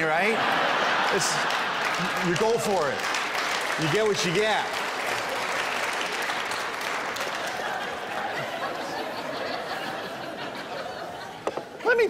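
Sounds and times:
audience laughing: 0.0 - 3.1, 6.6 - 12.0
audience applauding: 0.1 - 10.2.

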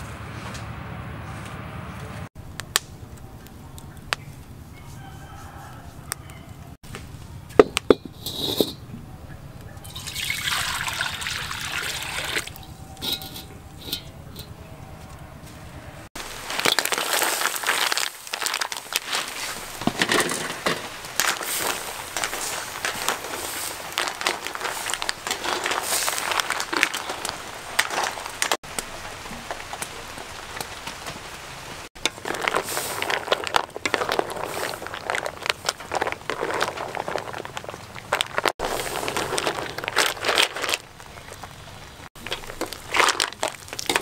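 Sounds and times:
mussels sizzling in a wok: 16.2 - 44.0.

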